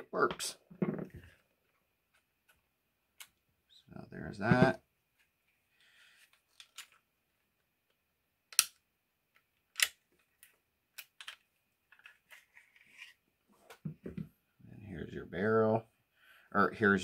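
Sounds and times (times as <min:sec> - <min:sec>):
pistol parts clacking: 0:08.5 - 0:08.8, 0:09.4 - 0:12.1.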